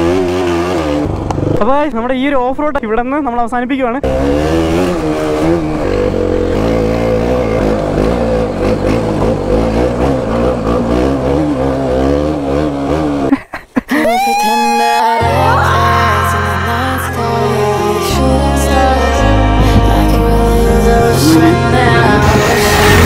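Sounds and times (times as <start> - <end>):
motorcycle engine running: 0.0 - 1.8, 4.1 - 13.3
music: 15.2 - 23.0.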